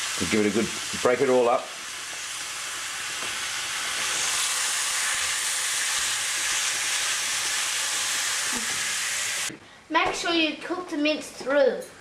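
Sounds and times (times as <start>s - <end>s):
meat sizzling in a frying pan: 0.0s - 9.5s.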